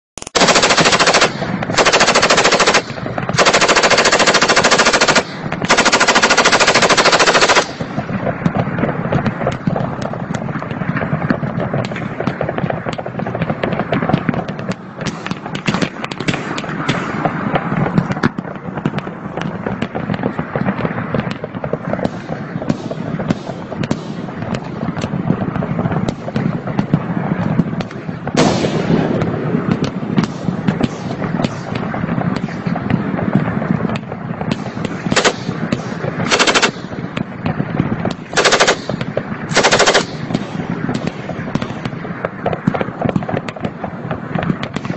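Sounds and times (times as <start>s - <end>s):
loud automatic gunfire bursts: 0.2s - 8.1s, 34.6s - 36.9s, 38.3s - 40.6s
distant crackle of gunfire: 0.2s - 44.9s.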